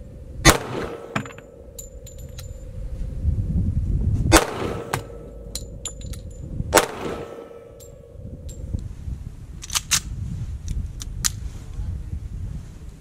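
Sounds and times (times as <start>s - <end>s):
pistol shots with echo: 0.4s - 1.5s, 4.3s - 6.0s, 6.7s - 8.1s
brass casings tinkling: 0.7s - 2.8s, 4.6s - 8.8s.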